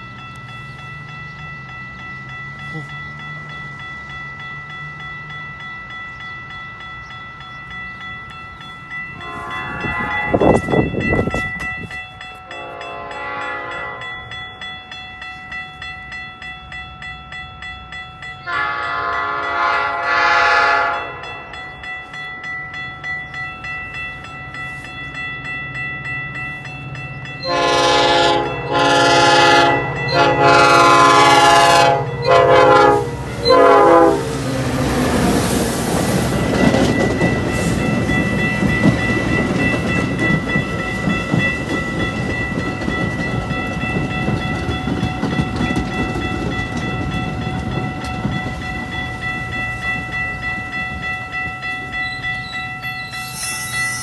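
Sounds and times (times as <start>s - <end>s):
railroad crossing bell ringing: 0.0s - 54.0s
train air horn blasts: 9.2s - 10.6s, 12.5s - 14.1s, 18.4s - 21.3s, 27.4s - 34.3s.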